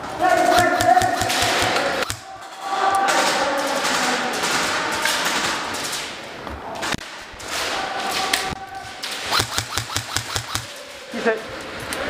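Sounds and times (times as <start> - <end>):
airsoft guns firing: 0.3 - 6.2, 6.8 - 10.9.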